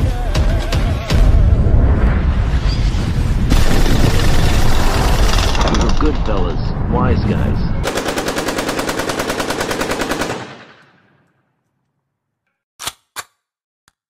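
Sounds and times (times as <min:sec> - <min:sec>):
low rumble: 0:01.1 - 0:07.9
machine-gun fire: 0:03.5 - 0:06.0, 0:07.8 - 0:10.9.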